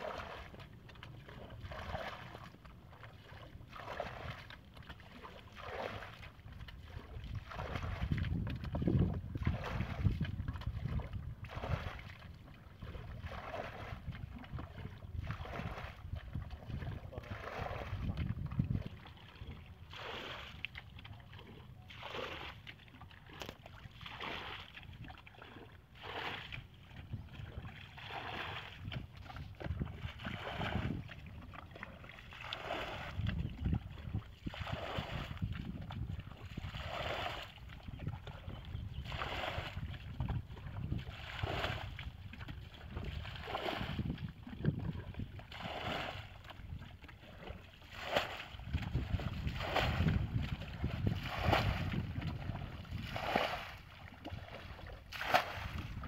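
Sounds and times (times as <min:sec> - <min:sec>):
water splashing from bucket: 0:00.0 - 0:38.4, 0:39.0 - 0:56.0
wind buffeting microphone: 0:06.3 - 0:19.9, 0:26.5 - 0:47.0, 0:48.2 - 0:56.0.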